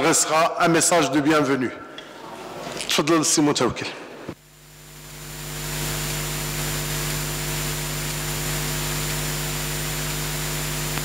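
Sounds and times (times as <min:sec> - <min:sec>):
electrical hiss: 0:04.4 - 0:11.0
faint high whine: 0:04.4 - 0:11.0
low mains hum: 0:04.4 - 0:11.0.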